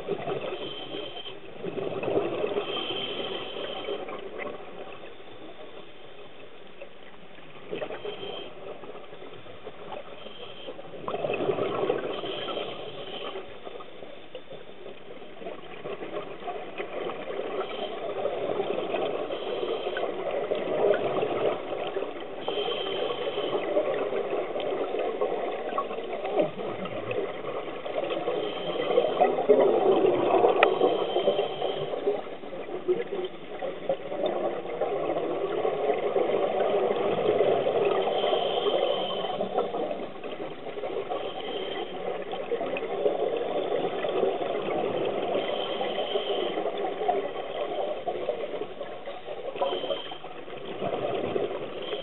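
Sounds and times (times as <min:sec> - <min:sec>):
bubbling of exhaled air: 0:00.0 - 0:04.5, 0:10.8 - 0:13.5
regulator hiss on inhale: 0:00.1 - 0:01.6, 0:02.4 - 0:06.2, 0:07.8 - 0:09.1, 0:09.8 - 0:11.0, 0:11.8 - 0:14.6, 0:17.3 - 0:26.1, 0:27.3 - 0:29.6, 0:30.4 - 0:32.6, 0:36.6 - 0:48.3, 0:49.0 - 0:50.5, 0:51.4 - 0:52.0.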